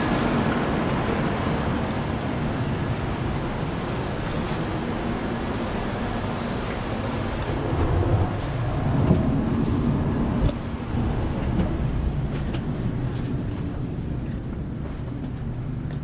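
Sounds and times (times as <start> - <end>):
train carriage rumble and hum: 0.0 - 16.0.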